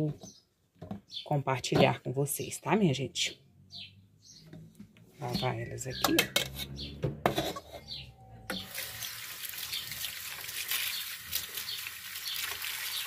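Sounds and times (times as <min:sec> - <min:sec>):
fruit washed by hand: 0:08.5 - 0:13.0
tap water running into steel bowl: 0:08.5 - 0:13.0.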